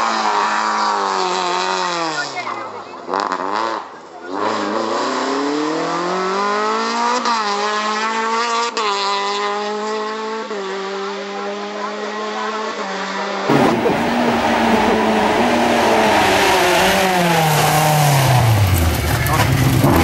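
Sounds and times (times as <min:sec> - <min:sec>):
car engine at full throttle: 0:04.4 - 0:20.0.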